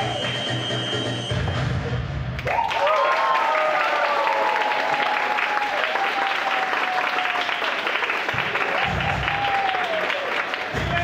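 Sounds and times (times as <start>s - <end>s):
crowd cheering: 0.0s - 1.7s, 2.3s - 11.0s
samba music: 0.0s - 2.4s, 8.3s - 10.0s, 10.6s - 11.0s
audience applauding: 2.4s - 11.0s.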